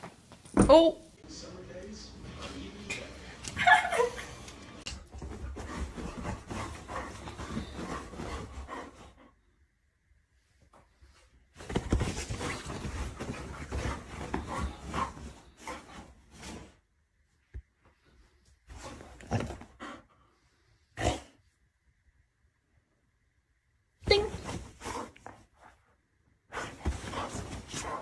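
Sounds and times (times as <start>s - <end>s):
bedding rustling: 4.9s - 9.3s, 10.4s - 20.2s, 24.1s - 28.0s.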